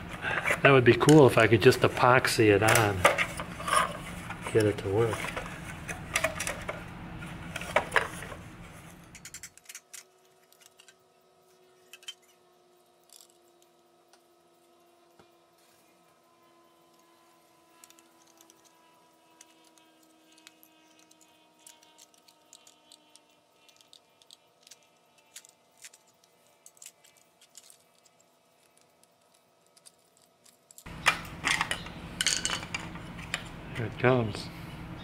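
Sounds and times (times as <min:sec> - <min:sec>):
screwdriver clicking and scraping plastic: 0:17.7 - 0:31.8.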